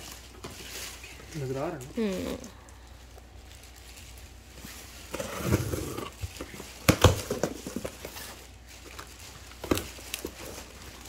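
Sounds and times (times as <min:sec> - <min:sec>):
package rustling: 0:00.0 - 0:11.0.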